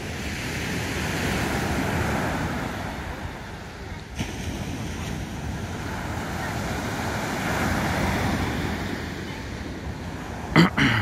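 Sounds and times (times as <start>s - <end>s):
surf breaking on beach: 0.0s - 11.0s.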